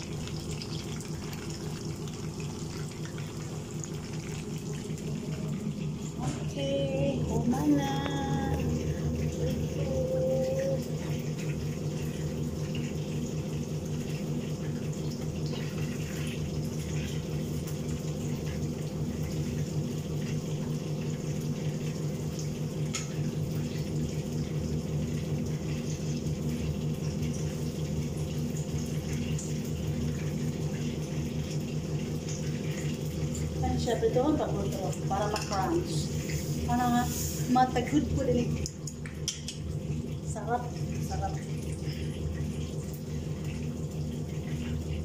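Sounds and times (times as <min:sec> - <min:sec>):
range hood fan hum: 0:00.0 - 0:45.0
utensil clicking against pan: 0:38.8 - 0:39.6.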